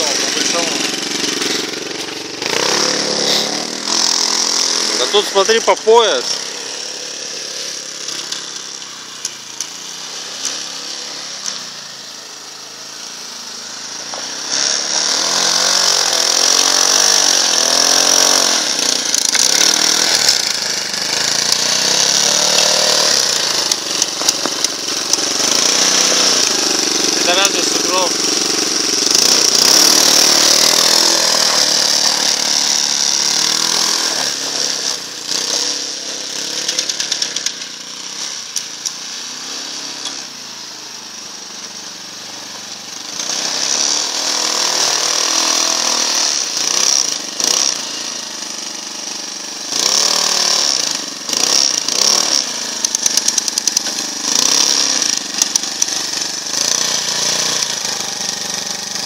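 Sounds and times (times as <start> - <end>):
small motorcycle engine revving: 0.0 - 59.0.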